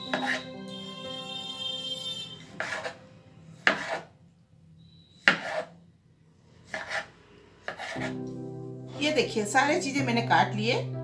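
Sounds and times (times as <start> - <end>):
background music: 0.0 - 4.2, 7.8 - 11.0
knife chopping on wooden board: 0.1 - 0.4, 2.6 - 3.0, 3.6 - 4.0, 5.2 - 5.7, 6.7 - 8.2.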